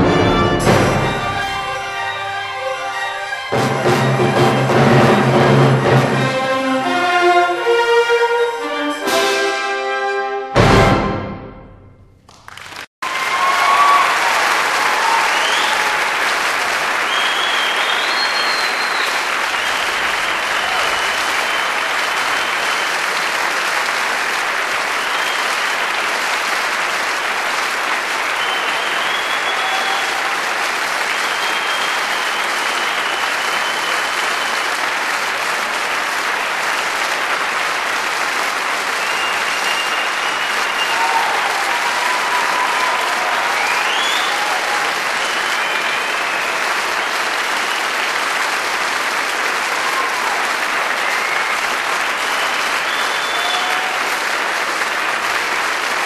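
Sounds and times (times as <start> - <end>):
audience applause: 0.0 - 7.6, 12.3 - 56.0
short high calls from audience: 13.0 - 23.0, 28.3 - 34.8, 38.9 - 47.8, 49.6 - 54.4.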